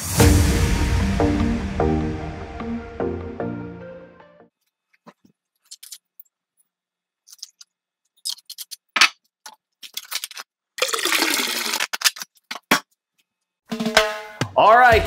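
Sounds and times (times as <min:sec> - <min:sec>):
cola pouring and fizzing: 0:10.8 - 0:12.0.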